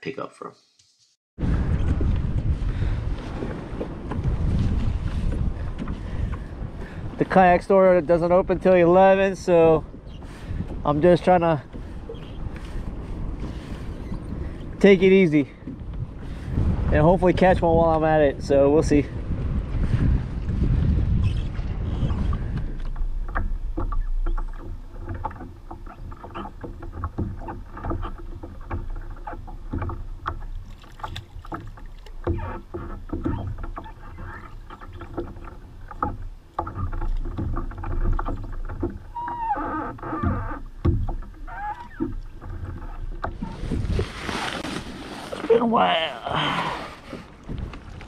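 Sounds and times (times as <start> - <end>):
low rumble: 1.4 - 7.4
water slapping kayak hull: 1.4 - 48.0.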